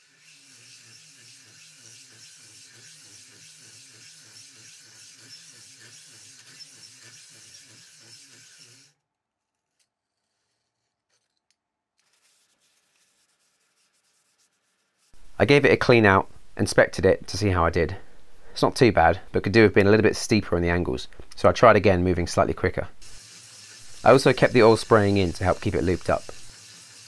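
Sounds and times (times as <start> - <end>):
rag rubbing metal: 0.0 - 8.9, 23.0 - 27.0
electric drill droning: 0.0 - 9.0, 23.0 - 27.0
hone stones scraping metal bore: 23.0 - 27.0.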